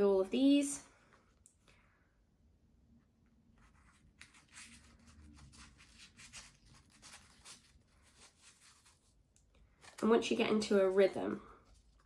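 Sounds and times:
crepe paper crinkling: 0:03.8 - 0:10.0, 0:11.5 - 0:12.0.

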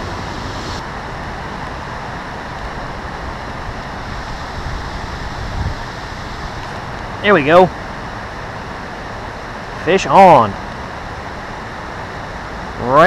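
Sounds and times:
high hiss: 0:00.0 - 0:00.9, 0:03.9 - 0:07.6.

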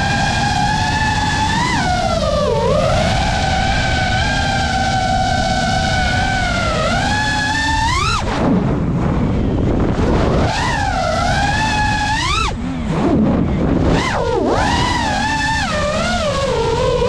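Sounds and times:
drone motors whining: 0:00.0 - 0:17.0
rush of air: 0:07.0 - 0:17.0.

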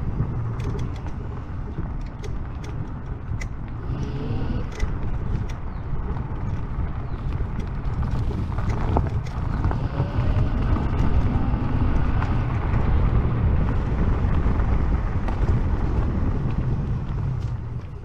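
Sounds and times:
tyres rolling on asphalt: 0:00.0 - 0:18.0
wind on microphone: 0:00.0 - 0:18.0
faint rising whine: 0:09.4 - 0:18.0.

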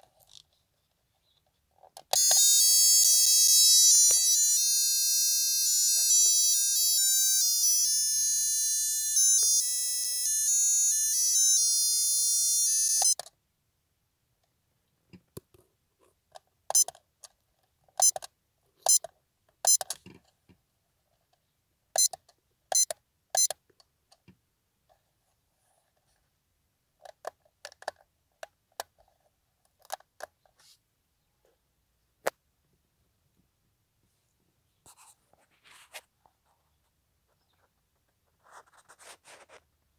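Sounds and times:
electronic clock melody: 0:02.1 - 0:13.2.

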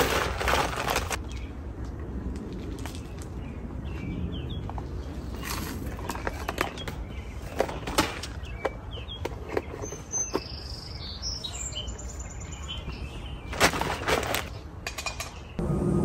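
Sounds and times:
plastic bag rustling: 0:00.0 - 0:01.2
bird chirps: 0:03.0 - 0:13.6.

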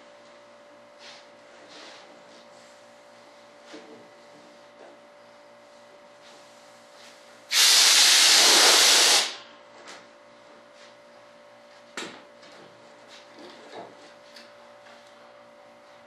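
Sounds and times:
compressed-air blow gun hissing: 0:07.5 - 0:09.4.

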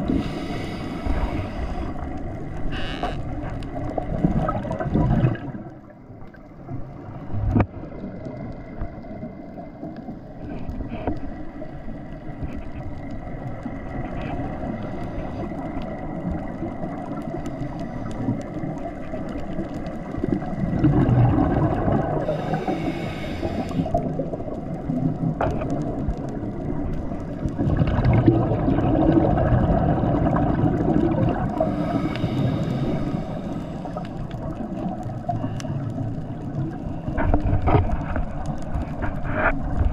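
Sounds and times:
scuba regulator breathing underwater: 0:00.0 - 0:02.1, 0:21.0 - 0:24.2, 0:31.3 - 0:34.2
bubbling bursts of exhaled air: 0:04.0 - 0:05.9, 0:20.2 - 0:25.1, 0:27.4 - 0:34.5.

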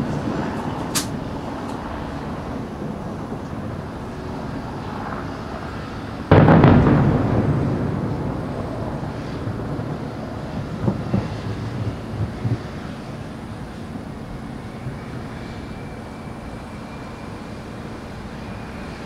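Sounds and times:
firework shell bursting with boom: 0:06.3 - 0:12.6.

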